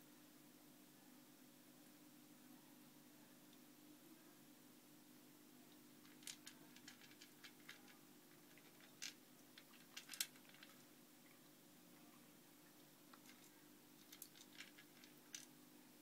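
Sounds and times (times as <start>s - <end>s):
water fountain pump hum: 4.5s - 16.0s
cat crunching dry kibble: 6.0s - 10.8s, 13.1s - 15.5s.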